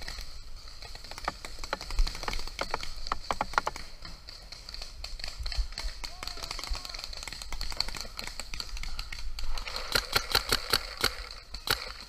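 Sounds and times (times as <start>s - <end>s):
paintball markers firing: 0.0s - 12.0s
paintballs striking: 0.0s - 12.0s.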